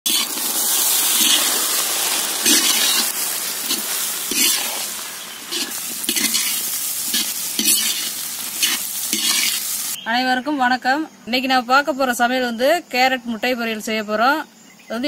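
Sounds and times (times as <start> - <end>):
food sizzling in a pan: 0.0 - 10.0
metal ladle scraping a pan: 0.0 - 10.0.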